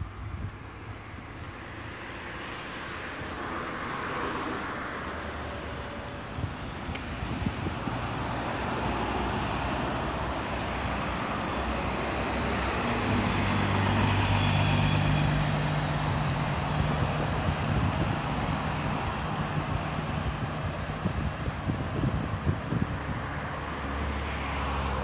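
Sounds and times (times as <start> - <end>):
road traffic passing: 0.0 - 25.0
bus driving by: 1.0 - 25.0
low engine hum: 5.8 - 25.0.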